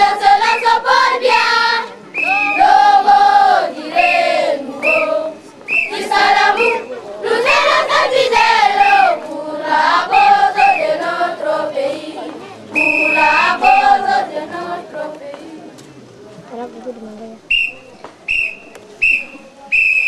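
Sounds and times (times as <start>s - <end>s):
children singing in a chant: 0.0s - 15.8s.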